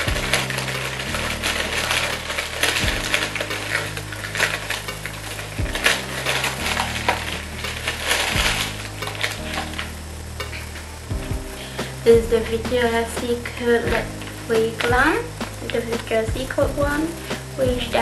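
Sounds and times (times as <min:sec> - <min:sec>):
packaging crinkling: 0:00.0 - 0:10.7
soft background music: 0:00.0 - 0:18.0.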